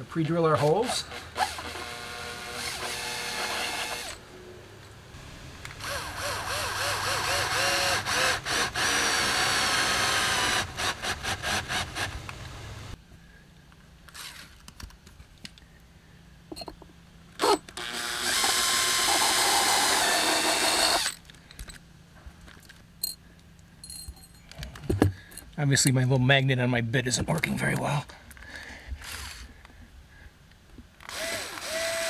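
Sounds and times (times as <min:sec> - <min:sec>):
cordless drill running: 0:01.1 - 0:04.2, 0:05.8 - 0:12.2, 0:17.4 - 0:21.2, 0:31.0 - 0:32.0.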